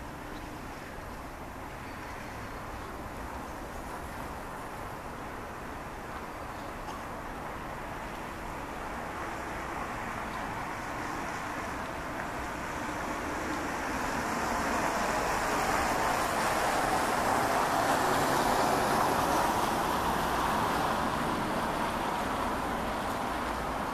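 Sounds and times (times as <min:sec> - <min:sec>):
road traffic rushing past: 0:08.8 - 0:23.9.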